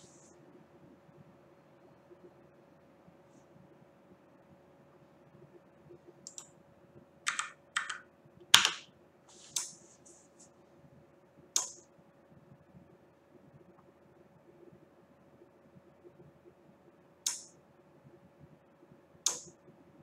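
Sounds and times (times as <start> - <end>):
faint steady hum: 0.0 - 20.0
computer keyboard keystrokes: 6.3 - 6.5, 7.3 - 8.9, 11.6 - 11.8, 17.3 - 17.5, 19.3 - 19.6.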